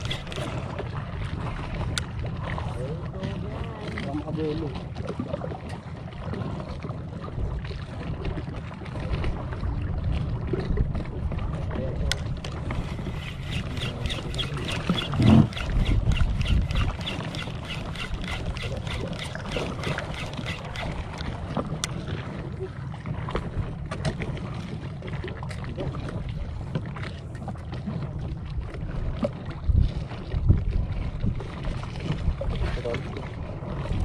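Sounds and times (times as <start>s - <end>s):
steady low boat noise: 0.0s - 34.0s
rapid even ticking: 13.0s - 21.0s.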